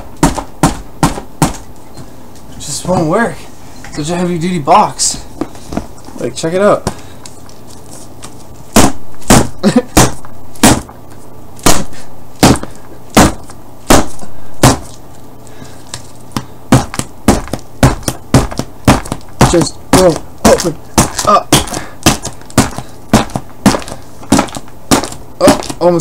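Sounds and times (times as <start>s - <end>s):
object whacking cardboard box: 0.0s - 1.7s, 8.7s - 11.0s, 11.6s - 15.0s, 15.9s - 25.9s.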